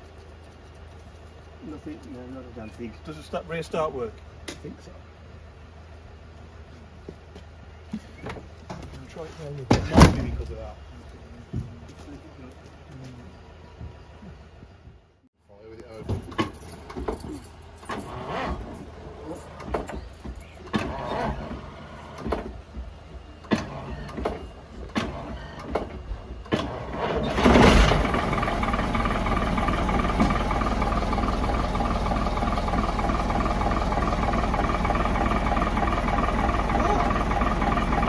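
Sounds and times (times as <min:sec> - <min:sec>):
engine knocks and clunks: 0:07.0 - 0:15.1, 0:15.8 - 0:38.0
diesel engine idling: 0:16.8 - 0:38.0
diesel engine starting burst: 0:17.8 - 0:20.0, 0:20.6 - 0:22.5, 0:23.3 - 0:38.0.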